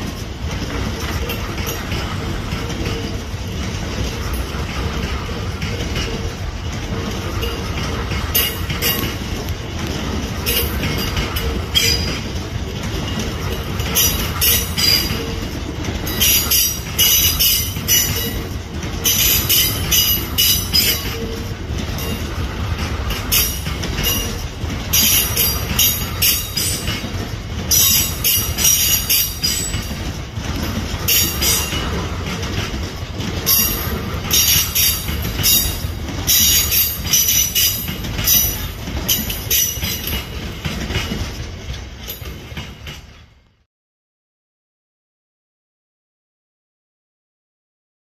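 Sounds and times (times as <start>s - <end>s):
freight train rumbling past: 0.0s - 43.6s
metallic wheel squeal and clatter: 10.0s - 41.1s.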